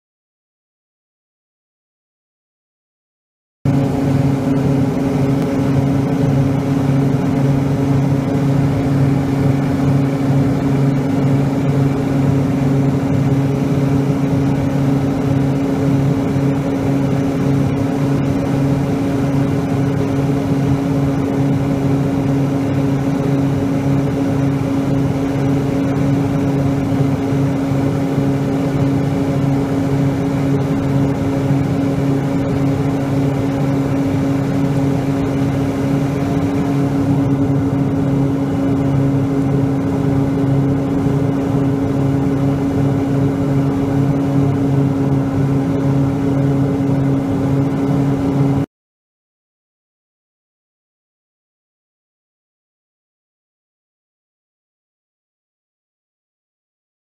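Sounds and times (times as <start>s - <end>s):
airplane engine and propeller drone: 3.7s - 48.7s.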